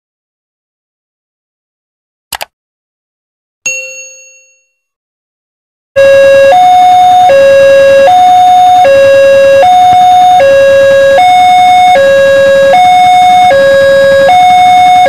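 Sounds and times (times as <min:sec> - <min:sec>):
click and bell ding: 0:03.7 - 0:04.8
level crossing warning alarm: 0:06.0 - 0:15.0.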